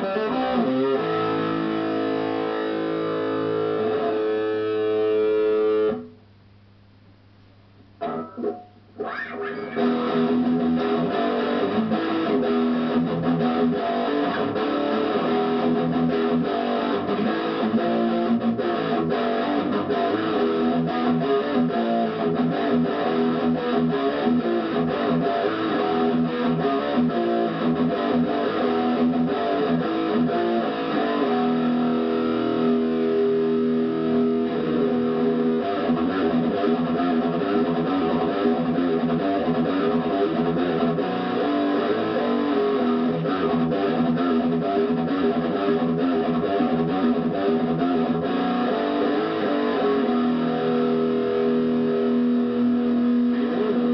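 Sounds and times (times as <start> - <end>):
electric guitar playing: 0.0 - 6.2, 8.0 - 53.9.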